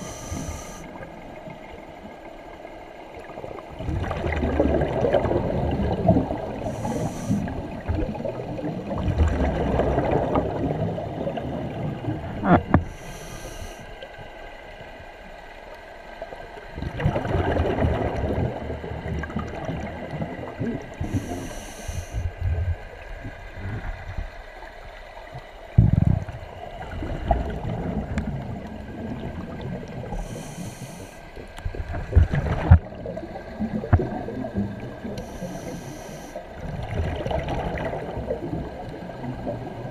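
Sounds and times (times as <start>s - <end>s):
hissing regulator inhale: 0.0s - 1.1s, 6.6s - 7.6s, 12.8s - 14.1s, 21.0s - 22.4s, 30.1s - 31.4s, 35.2s - 36.5s
gurgling exhaled bubbles: 3.1s - 13.8s, 16.7s - 24.4s, 25.7s - 39.9s.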